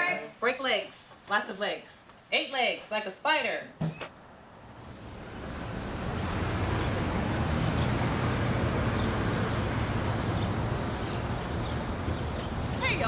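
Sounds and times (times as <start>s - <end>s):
passing cars: 4.3s - 13.0s
bus rumbling: 4.4s - 13.0s.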